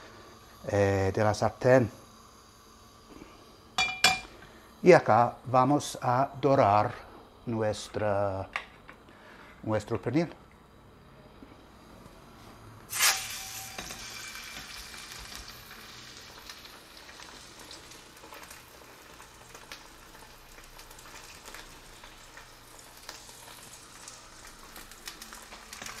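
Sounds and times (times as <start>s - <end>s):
chicken sizzling in a frying pan: 0.0s - 6.8s, 12.8s - 26.0s
oil popping and crackling: 13.0s - 26.0s.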